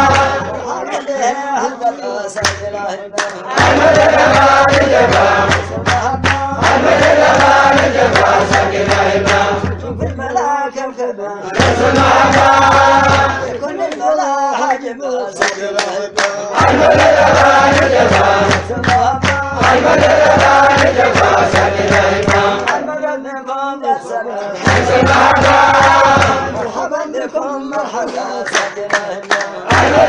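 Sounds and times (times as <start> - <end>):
sharp percussive strikes: 0.0 - 1.0, 2.4 - 10.4, 11.5 - 13.7, 15.4 - 22.8, 24.6 - 26.8, 28.1 - 30.0
male voices chanting: 0.0 - 30.0.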